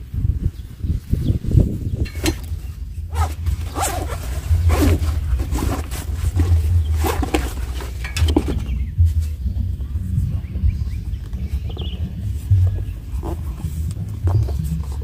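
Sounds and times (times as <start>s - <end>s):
wind on microphone: 0.0s - 15.0s
nylon bag rustling: 2.1s - 8.8s
zipper rasps: 3.1s - 8.0s.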